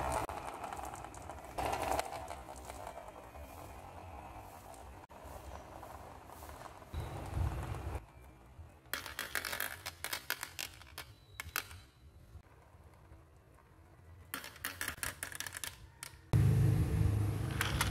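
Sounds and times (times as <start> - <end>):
marbles clicking in plastic tube: 0.0 - 3.1, 8.9 - 11.8, 14.3 - 16.3.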